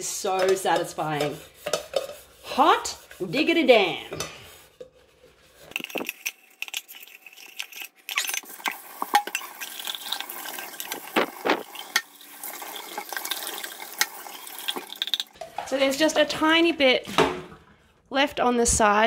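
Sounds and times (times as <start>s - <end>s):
brush scrubbing metal tumbler: 0.0s - 16.4s
tap water running: 5.7s - 17.4s.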